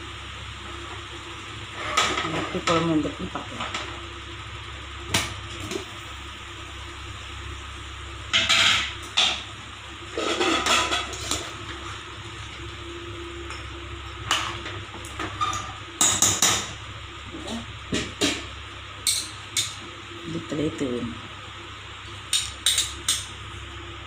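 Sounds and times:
ladle scraping metal pot: 0:10.1 - 0:11.4.

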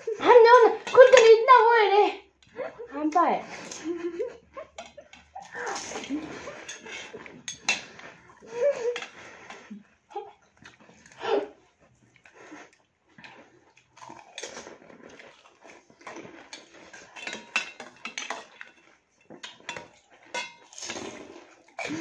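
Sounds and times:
metal spoons clinking against bowls: 0:00.5 - 0:01.6, 0:04.7 - 0:08.0, 0:16.0 - 0:21.1.

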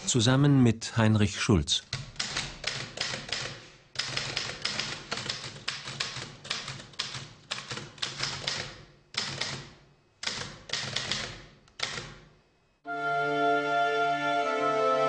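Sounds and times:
typewriter keys clicking: 0:01.9 - 0:12.3.

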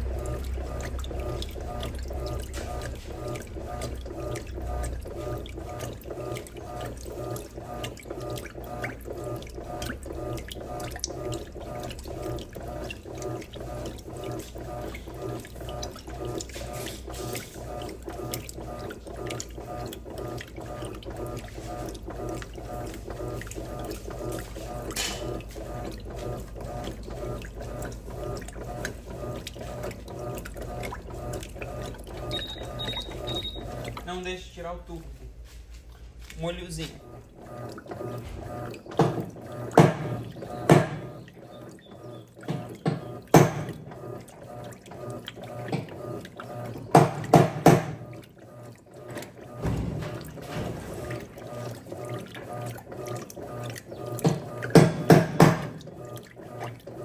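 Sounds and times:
washing machine water sloshing: 0:00.0 - 0:57.0.

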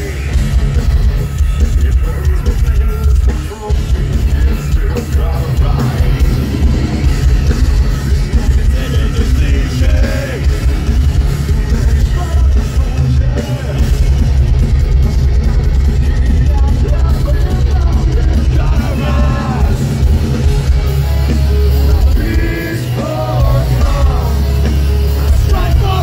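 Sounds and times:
bass guitar: 0:00.0 - 0:26.0
distorted electric guitars: 0:00.0 - 0:26.0
drums: 0:00.0 - 0:26.0
person singing: 0:01.3 - 0:07.0, 0:08.2 - 0:14.0, 0:16.5 - 0:20.0, 0:21.6 - 0:26.0.

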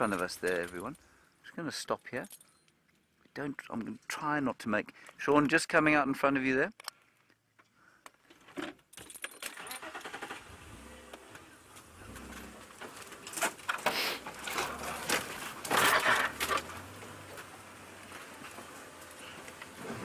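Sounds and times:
vehicle jolts: 0:09.6 - 0:20.0.

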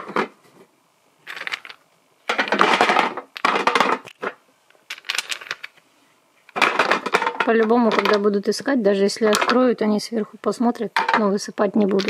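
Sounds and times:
wooden blocks clattering into metal tin: 0:01.3 - 0:05.7, 0:06.5 - 0:08.3.

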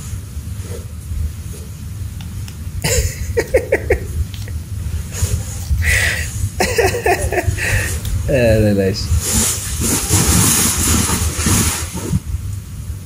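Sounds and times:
steady low hum: 0:00.0 - 0:13.0
breathy laugh: 0:02.8 - 0:04.2, 0:05.8 - 0:08.0
person laughing: 0:02.8 - 0:04.4, 0:05.8 - 0:08.0.

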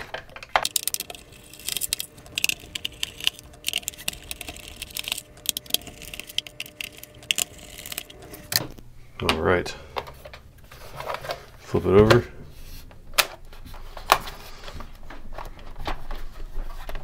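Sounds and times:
screwdriver clicking on screws: 0:00.6 - 0:08.6.

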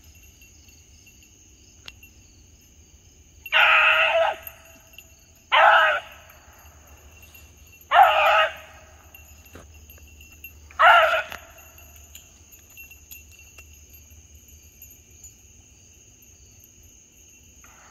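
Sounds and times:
insects trilling: 0:00.0 - 0:17.9
dog baying: 0:07.9 - 0:09.0, 0:10.7 - 0:11.6.

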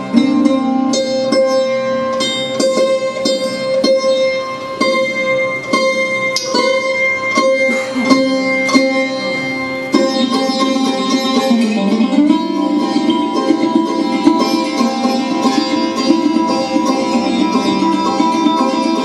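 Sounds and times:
sarod plucked melody: 0:00.0 - 0:19.0.

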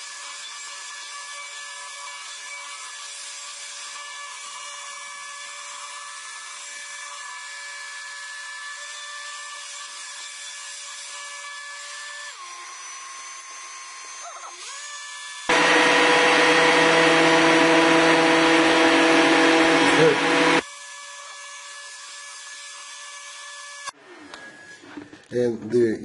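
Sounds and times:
stick blender motor whine: 0:12.1 - 0:20.7.

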